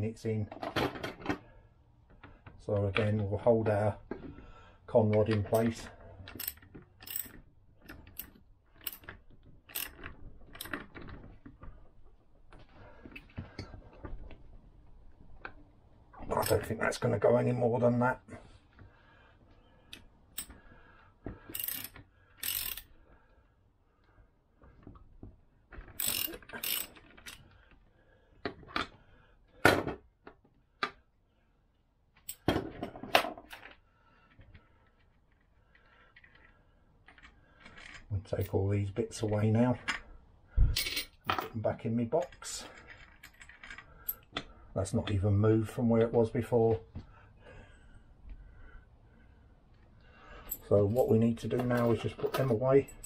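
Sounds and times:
metal tools clinking and knocking: 5.3 - 11.3, 40.7 - 41.6, 42.2 - 44.4, 50.4 - 53.0
socket ratchet wrench clicking: 6.3 - 7.4, 9.7 - 10.8, 21.5 - 22.9, 26.0 - 27.4.

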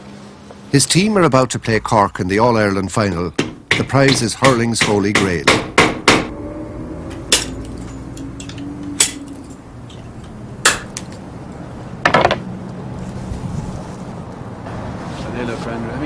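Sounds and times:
metal tool tapping metal band: 3.4 - 6.2.

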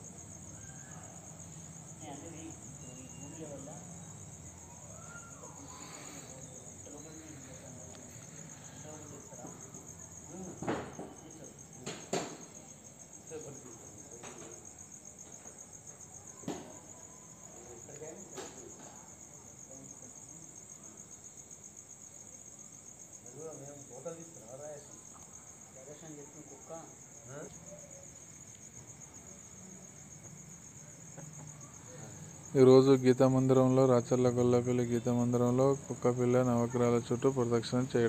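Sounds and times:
insects chirping in a pulsing trill: 0.0 - 38.0
faint voices: 2.2 - 14.8.

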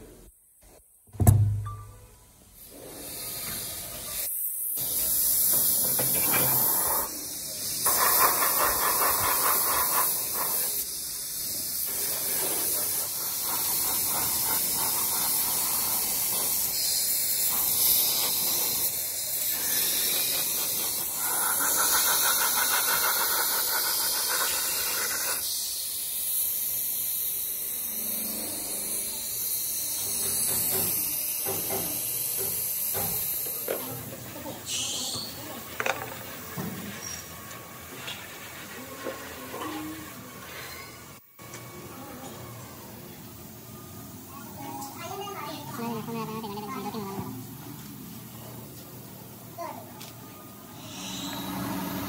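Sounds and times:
paint spray gun hissing: 2.6 - 39.2.

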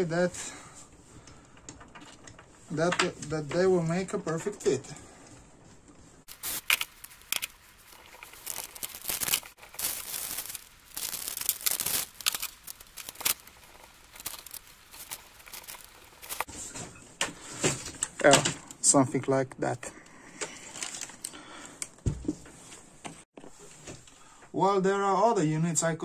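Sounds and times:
plastic bag rustling: 6.0 - 16.5.

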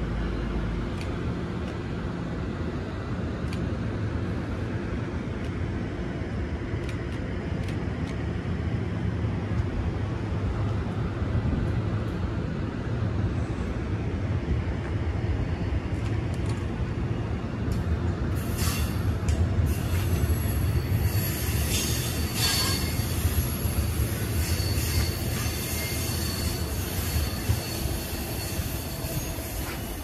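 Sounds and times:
train wheels rumbling on rails: 0.0 - 30.0
high wheel squeal: 18.4 - 19.1, 19.7 - 30.0.

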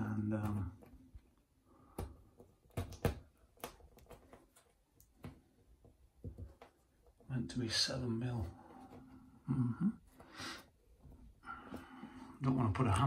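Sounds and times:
plastic clicks and taps on wall: 0.0 - 7.3.

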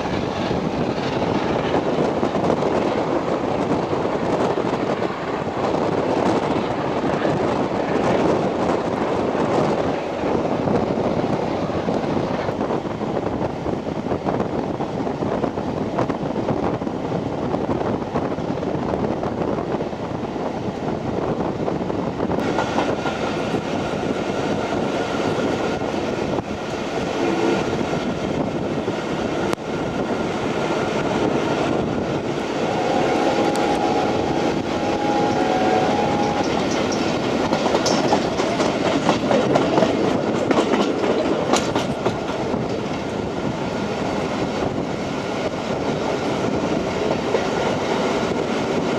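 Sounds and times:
clickety-clack over rail joints: 0.0 - 19.8, 20.7 - 32.4, 34.9 - 48.9
train wheels rumbling on rails: 0.0 - 48.9
chord of steady tones: 32.4 - 38.0.

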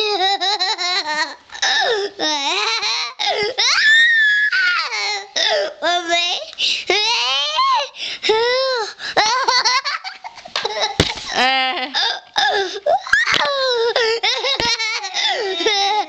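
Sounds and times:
child's high wordless cries: 0.0 - 9.6, 12.0 - 16.0
young child laughing: 9.2 - 11.4, 13.0 - 16.0.

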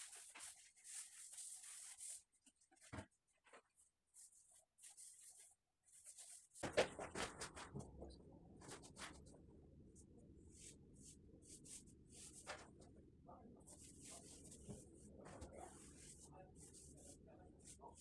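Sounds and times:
paintbrush swishing on wall: 0.0 - 2.9, 4.2 - 6.6, 13.7 - 18.0.

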